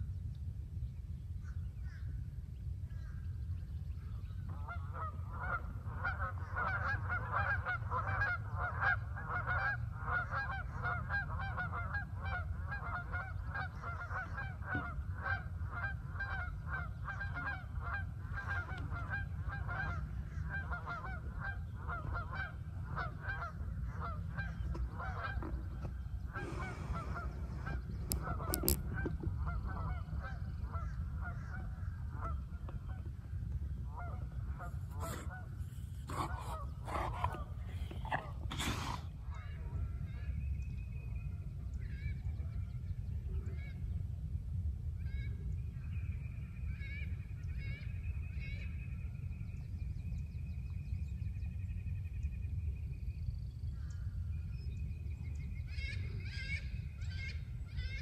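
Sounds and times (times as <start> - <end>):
low steady rumble: 0.0 - 58.0
geese honking: 4.6 - 33.0, 33.9 - 39.0
camera handling rustle and clicks: 28.1 - 28.9.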